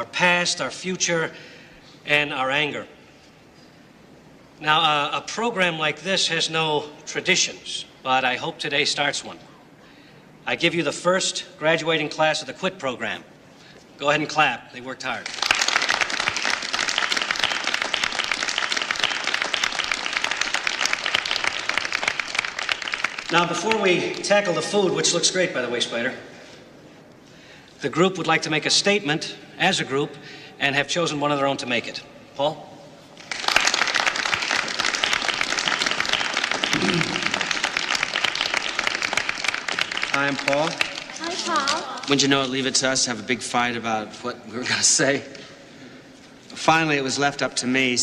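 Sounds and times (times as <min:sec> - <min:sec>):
audience clapping: 0:15.1 - 0:24.5, 0:33.2 - 0:42.3
group of people applauding: 0:15.2 - 0:24.5, 0:33.2 - 0:42.3.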